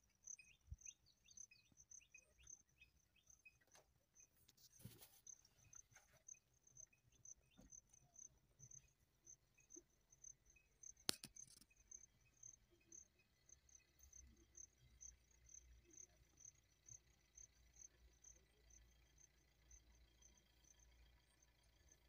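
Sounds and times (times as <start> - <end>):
insect chirping: 0.0 - 22.0
sharp click: 11.1 - 11.7.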